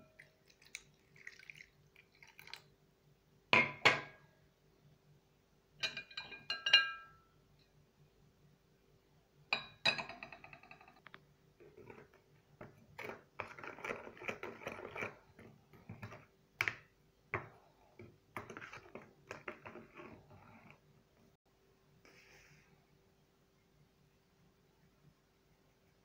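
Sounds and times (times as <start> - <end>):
spoon clinking: 5.8 - 7.2
spoon scraping plastic container: 11.6 - 16.3, 18.4 - 20.8.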